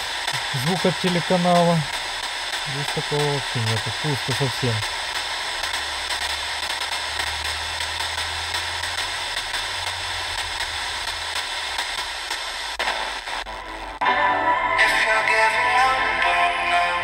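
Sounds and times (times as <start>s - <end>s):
radio static hiss: 0.0s - 14.0s.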